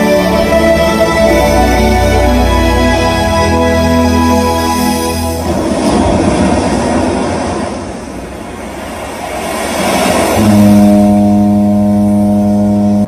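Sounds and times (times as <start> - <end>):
sustained low note: 0.0 - 5.8, 10.3 - 13.0
rushing noise: 0.0 - 12.2.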